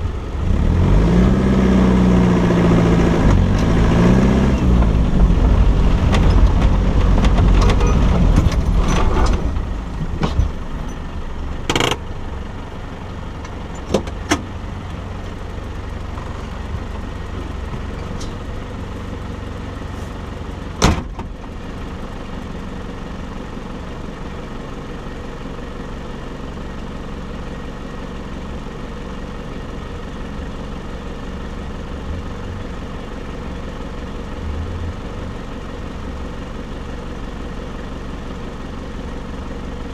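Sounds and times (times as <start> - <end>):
off-road vehicle engine: 0.0 - 39.9
vehicle rattles and knocks: 2.9 - 23.8, 31.3 - 37.1.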